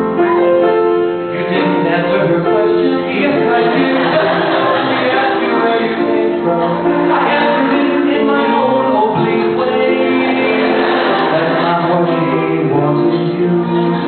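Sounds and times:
piano accompaniment: 0.0 - 14.0
voices singing in harmony: 1.4 - 14.0.

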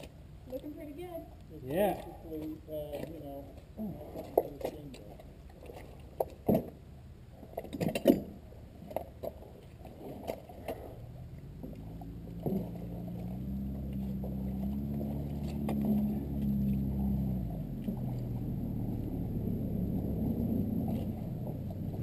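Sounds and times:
low motor drone: 10.6 - 22.0.

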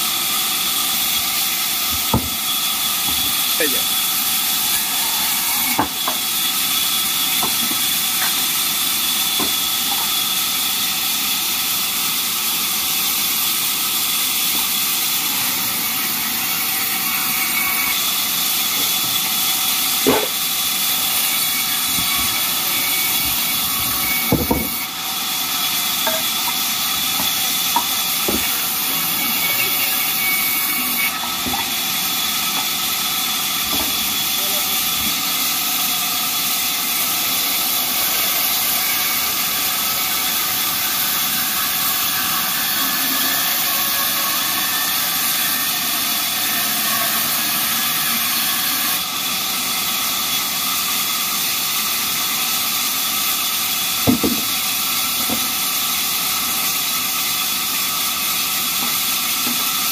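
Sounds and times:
sharp wood knocks: 1.9 - 2.4, 54.1 - 54.5
band saw ripping timber: 19.8 - 31.9.

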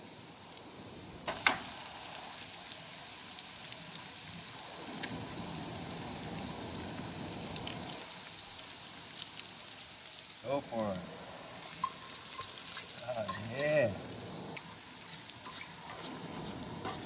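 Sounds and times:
eggs and vegetables sizzling in skillet: 0.0 - 17.0
utensil working through pan: 11.6 - 13.8, 14.6 - 17.0.

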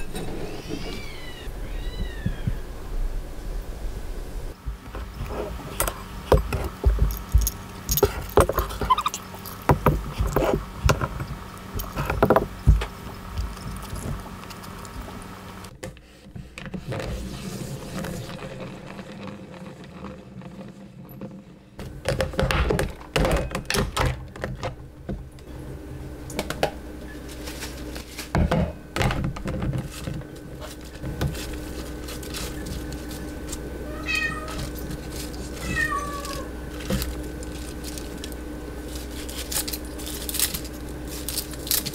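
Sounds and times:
cat meowing: 0.6 - 2.7, 33.8 - 34.7, 35.6 - 36.5.

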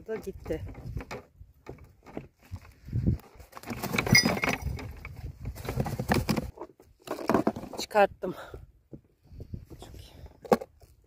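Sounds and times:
handling noise rustling: 0.3 - 7.8.

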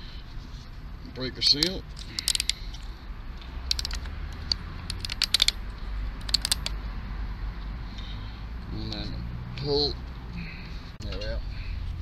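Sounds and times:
plastic ring snapping off: 3.7 - 5.6, 6.2 - 6.8.

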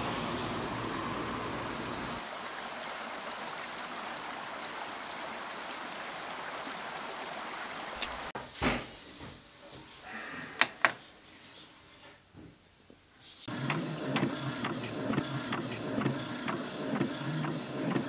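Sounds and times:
printer mechanism whirring and ticking: 13.5 - 18.0
sharp printer clicks: 13.6 - 18.0.

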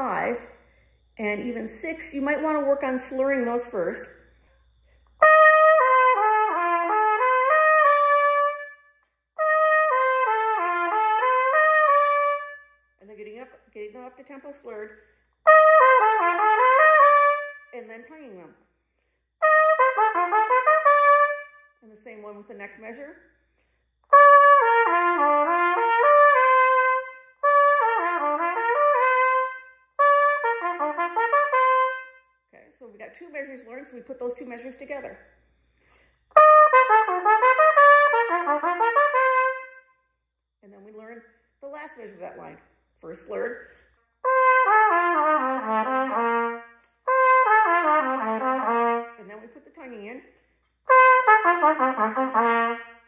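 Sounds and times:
trumpet playing: 5.1 - 12.8, 15.4 - 17.8, 19.4 - 21.8, 24.1 - 32.3, 36.3 - 40.0, 44.2 - 49.5, 50.9 - 53.0.

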